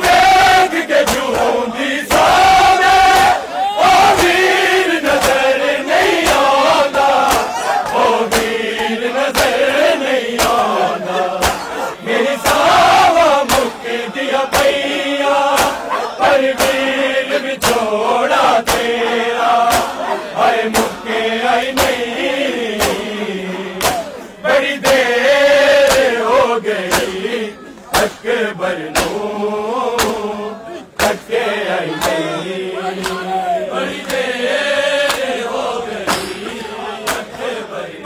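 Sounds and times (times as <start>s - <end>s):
hands slapping chests: 0.0s - 13.9s, 14.5s - 14.9s, 15.5s - 15.9s, 16.5s - 16.9s, 17.6s - 19.0s, 19.7s - 20.0s, 20.7s - 21.0s, 21.6s - 22.1s, 22.7s - 23.1s, 23.8s - 24.2s, 24.8s - 25.1s, 25.8s - 26.2s, 26.8s - 27.2s, 27.9s - 28.3s, 28.9s - 29.3s, 29.9s - 30.2s, 31.0s - 31.3s, 31.9s - 32.3s, 33.0s - 33.3s, 33.9s - 34.3s, 35.0s - 35.3s, 36.1s - 37.4s
men chanting a lament: 0.0s - 38.0s.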